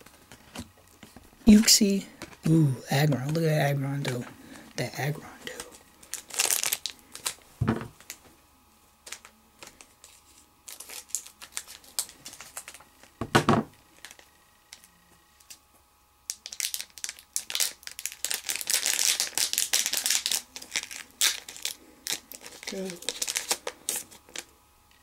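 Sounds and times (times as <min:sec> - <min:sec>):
foil wrapper crinkling: 0:05.4 - 0:07.4, 0:08.0 - 0:08.2, 0:09.0 - 0:13.2, 0:13.9 - 0:15.6, 0:16.3 - 0:24.5.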